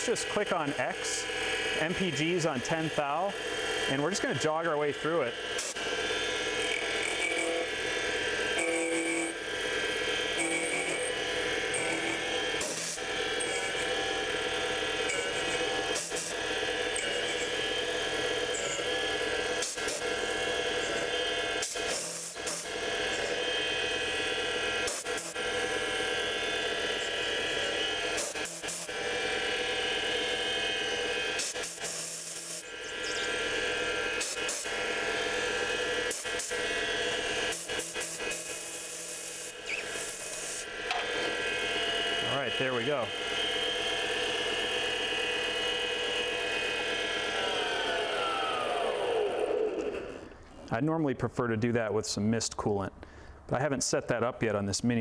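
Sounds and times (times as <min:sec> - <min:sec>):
cutting tool scraping: 0:00.0 - 0:44.0
lathe running: 0:00.0 - 0:50.7.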